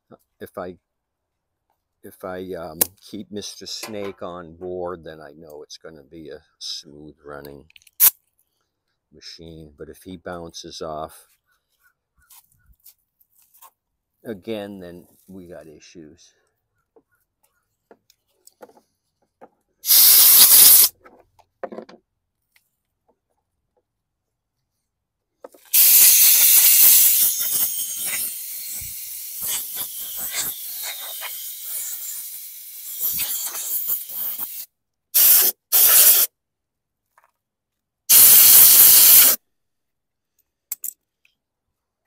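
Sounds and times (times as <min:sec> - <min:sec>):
compressed air blow gun hissing: 0:19.8 - 0:20.9, 0:25.7 - 0:36.3, 0:38.1 - 0:39.4.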